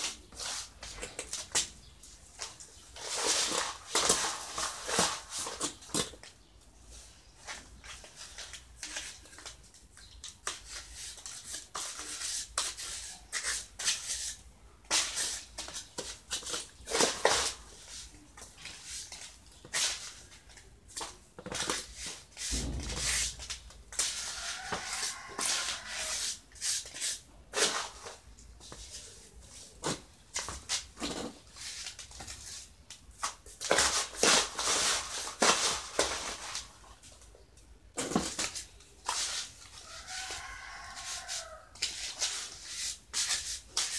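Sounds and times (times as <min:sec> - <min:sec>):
trowel scraping wet mortar: 0:40.8 - 0:43.9.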